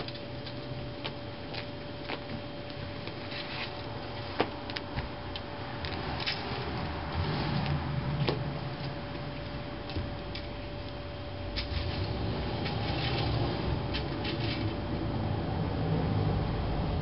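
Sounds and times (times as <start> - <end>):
rake scraping over soil: 11.5 - 14.8.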